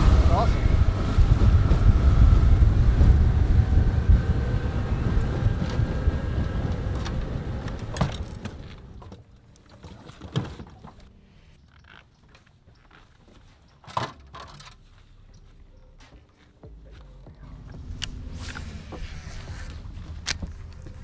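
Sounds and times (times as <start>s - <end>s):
wind rushing over microphone: 0.0s - 8.2s
boat engine and hull drone: 0.0s - 10.2s, 16.6s - 21.0s.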